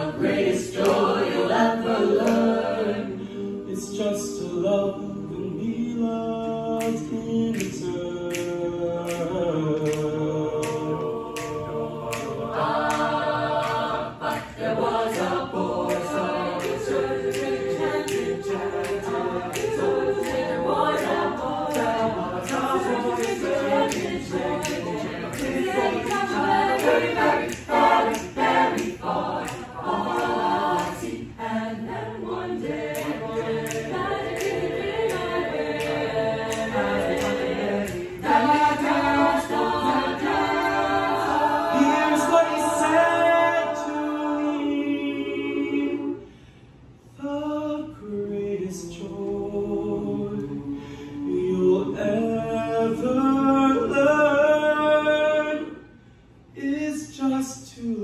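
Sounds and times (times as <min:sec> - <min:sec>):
a cappella group singing: 0:00.0 - 0:58.0
clicking beat: 0:00.1 - 0:03.2, 0:05.8 - 0:43.4.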